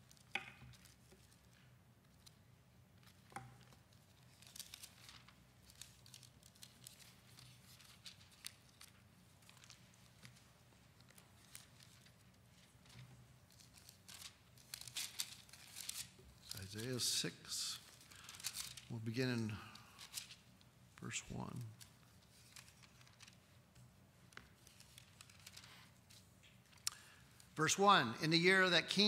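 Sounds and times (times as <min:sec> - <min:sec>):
low room hum: 0:00.0 - 0:29.0
thin pages being turned: 0:03.0 - 0:17.1, 0:17.8 - 0:18.9, 0:21.5 - 0:26.8.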